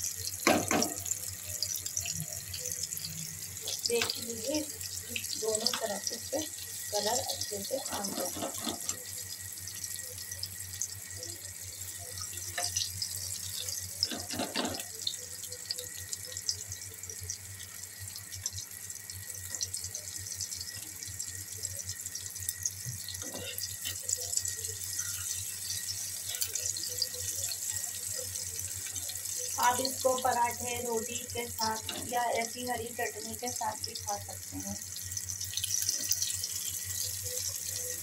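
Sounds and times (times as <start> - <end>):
food sizzling in hot oil: 0.0 - 38.0
metal spatula scraping a pan: 7.8 - 9.0.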